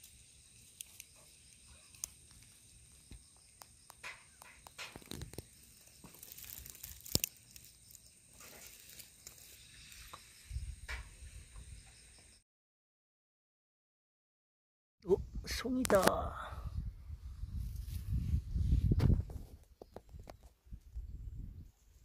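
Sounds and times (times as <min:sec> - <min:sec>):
rustling of dry pine needles: 0:00.0 - 0:10.4.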